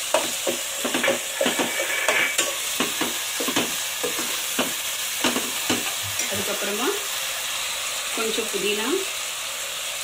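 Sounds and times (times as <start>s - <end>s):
spoon stirring and scraping pot: 0.0s - 6.6s
frying sizzle: 0.0s - 10.0s.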